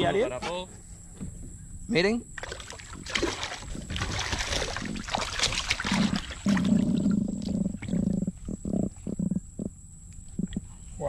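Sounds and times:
water splashing and dripping: 0:02.4 - 0:06.8
fish croaking drumming: 0:02.4 - 0:10.7.

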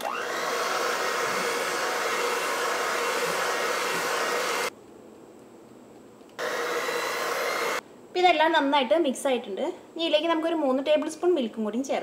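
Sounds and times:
electric hand mixer running: 0:00.0 - 0:04.7, 0:06.4 - 0:07.8.

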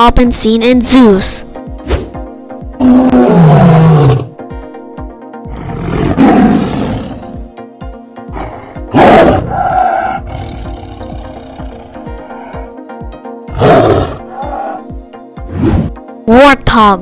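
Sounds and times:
background music: 0:00.0 - 0:17.0
tiger roaring: 0:02.8 - 0:04.3, 0:05.5 - 0:07.4, 0:08.3 - 0:12.7, 0:13.5 - 0:14.9.

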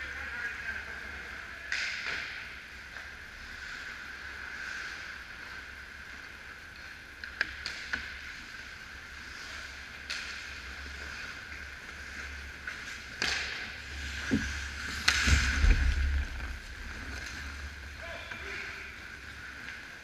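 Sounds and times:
steady background hum: 0:00.0 - 0:20.0
hockey sticks and puck clicking: 0:01.7 - 0:03.2, 0:06.2 - 0:08.7, 0:09.4 - 0:15.6
skate blades scraping ice: 0:03.3 - 0:20.0
low thumps: 0:14.2 - 0:17.8.

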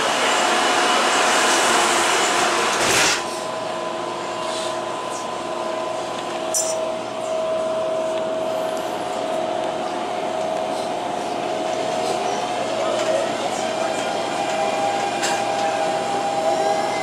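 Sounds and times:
train electrical whine: 0:00.0 - 0:17.0
train doors sliding shut: 0:01.5 - 0:03.5, 0:12.2 - 0:17.0.

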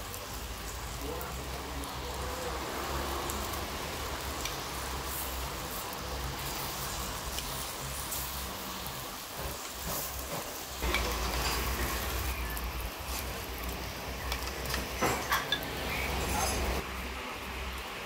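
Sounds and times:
meat sizzling on a grill: 0:00.0 - 0:18.0
utensils clinking on metal: 0:10.3 - 0:12.3, 0:14.2 - 0:16.8.

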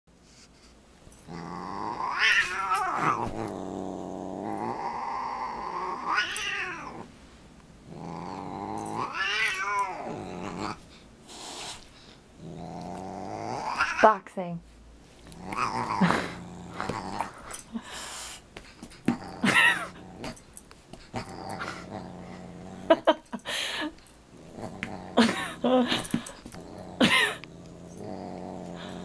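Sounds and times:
cat growling and yowling: 0:01.3 - 0:07.1, 0:08.0 - 0:10.8, 0:12.5 - 0:14.0, 0:15.4 - 0:17.4.

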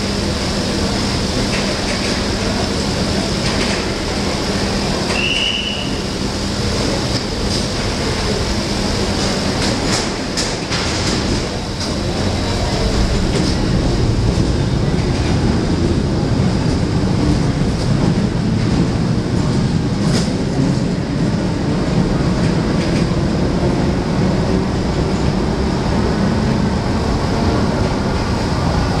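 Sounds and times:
train wheels rumbling on rail: 0:00.0 - 0:29.0.

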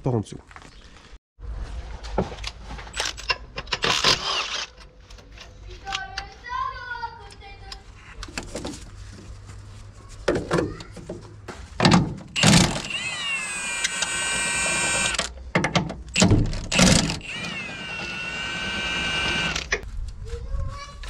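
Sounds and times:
small electric motor whining: 0:12.4 - 0:15.3, 0:16.7 - 0:19.8.

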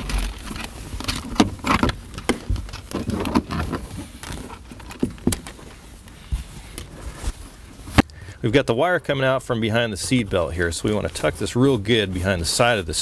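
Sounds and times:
cable handling taps and rustles: 0:00.0 - 0:08.2.

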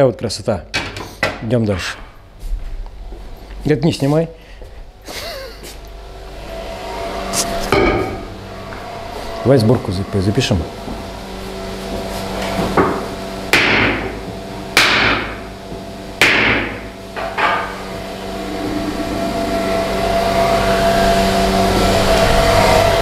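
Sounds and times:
steady mechanical hum: 0:00.0 - 0:23.0
hammer strikes with ringing: 0:07.7 - 0:08.2, 0:13.5 - 0:14.1, 0:14.8 - 0:15.4, 0:16.2 - 0:17.8.

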